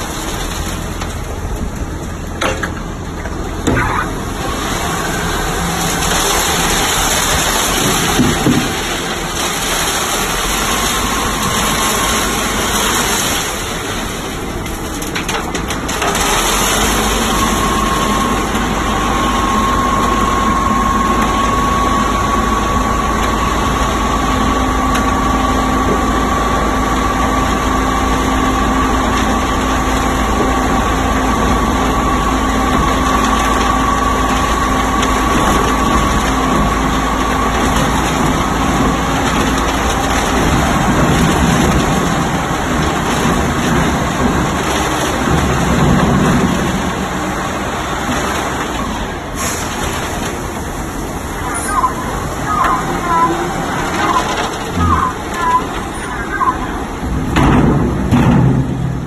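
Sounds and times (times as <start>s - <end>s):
truck engine running under load: 0.0s - 59.0s
steady whine: 50.7s - 57.6s.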